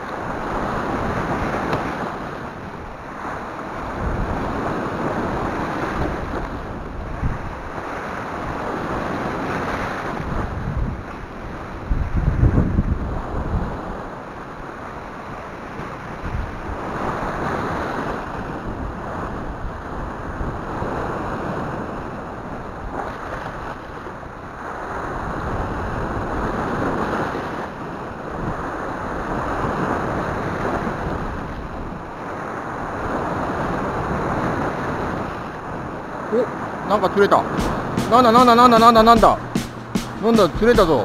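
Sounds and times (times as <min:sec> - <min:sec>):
wind buffeting microphone: 0:00.0 - 0:14.2
sea waves washing over rocks: 0:00.0 - 0:41.0.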